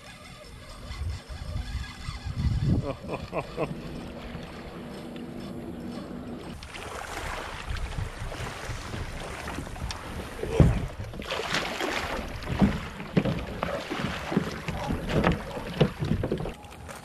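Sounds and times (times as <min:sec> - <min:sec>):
wind on microphone: 0:00.3 - 0:04.8, 0:07.2 - 0:11.2
footsteps splashing in water: 0:06.1 - 0:17.0.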